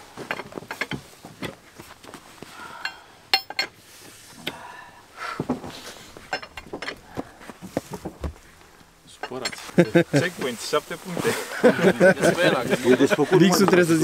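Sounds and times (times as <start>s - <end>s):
metal tools clinking and knocking: 0.3s - 1.0s, 2.8s - 3.8s, 6.3s - 7.0s, 9.1s - 10.0s
sharp ringing metal clink: 3.3s - 3.7s.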